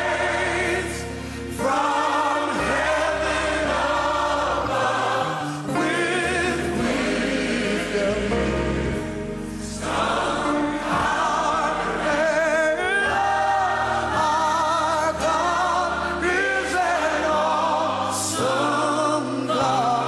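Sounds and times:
gospel choir singing: 0:00.0 - 0:20.0.

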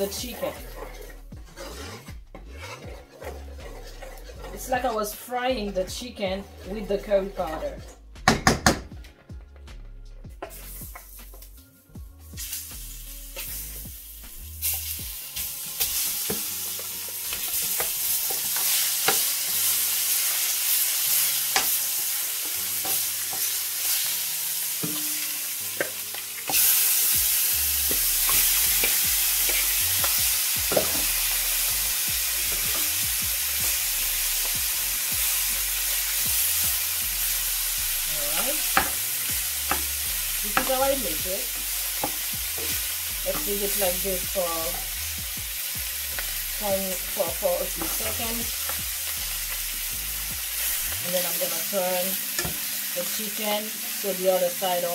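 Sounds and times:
spoon knocking against pan: 0:08.2 - 0:09.0
chicken sizzling in hot oil: 0:10.4 - 0:11.6, 0:12.3 - 0:54.9.

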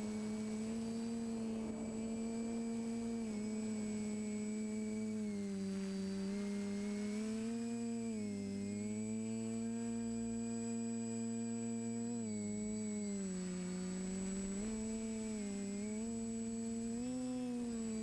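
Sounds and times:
high whine: 0:00.0 - 0:06.8
drone motors humming: 0:00.0 - 0:18.0.

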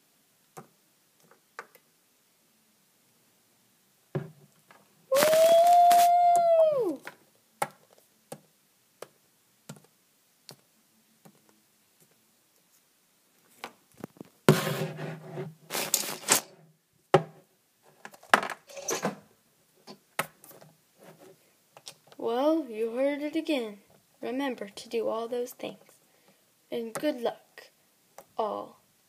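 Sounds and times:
high voice-like howl: 0:05.1 - 0:07.1.

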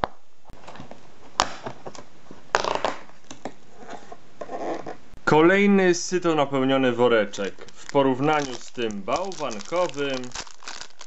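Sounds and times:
cardboard tearing and crackling: 0:07.7 - 0:11.0.

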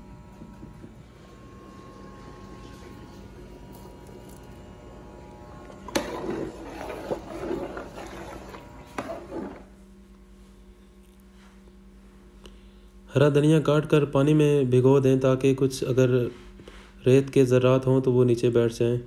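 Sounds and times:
low electrical hum: 0:00.0 - 0:19.0
ladle stirring liquid in pot: 0:05.6 - 0:09.7.

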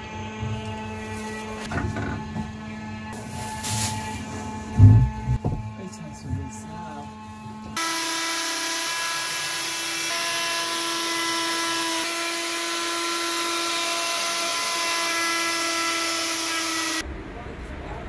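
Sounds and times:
router cutting whine: 0:04.6 - 0:17.0.

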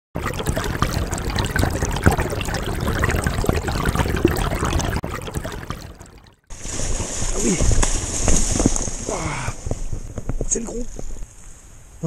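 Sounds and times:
water trickling and gurgling: 0:00.2 - 0:07.4.

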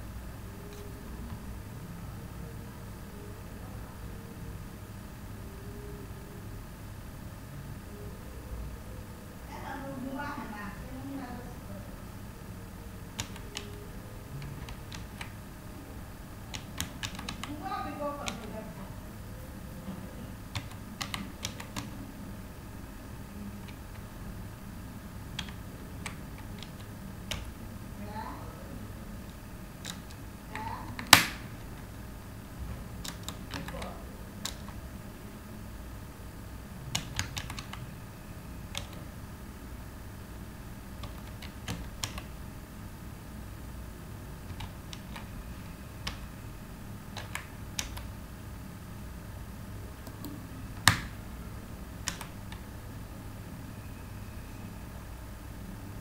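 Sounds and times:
steady low hum: 0:00.0 - 0:56.0
keyboard keys clicking: 0:13.1 - 0:15.4, 0:16.5 - 0:18.6, 0:20.5 - 0:22.0, 0:23.6 - 0:24.1, 0:25.4 - 0:27.6, 0:29.2 - 0:32.0, 0:33.0 - 0:34.8, 0:36.9 - 0:37.9, 0:38.7 - 0:39.0, 0:41.0 - 0:42.3, 0:44.4 - 0:45.3, 0:47.1 - 0:48.1, 0:50.0 - 0:51.2, 0:52.0 - 0:52.7.

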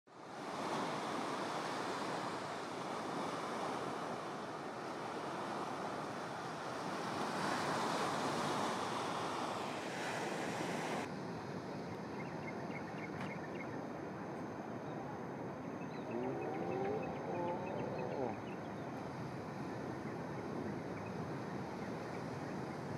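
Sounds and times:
ocean surf breaking: 0:00.1 - 0:12.1.

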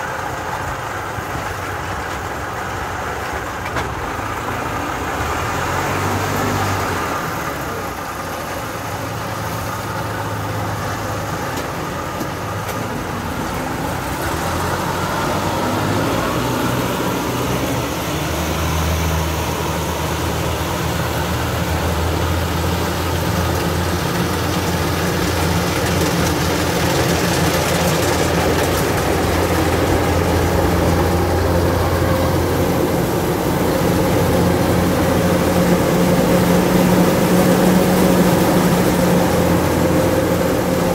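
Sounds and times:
combine harvester engine and threshing: 0:00.0 - 0:40.9.

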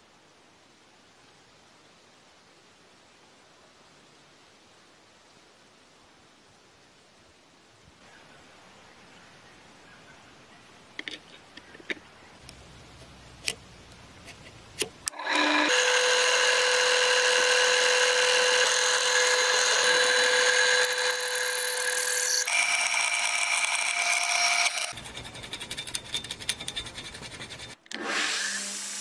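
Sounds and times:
drill press whining: 0:15.1 - 0:24.9.

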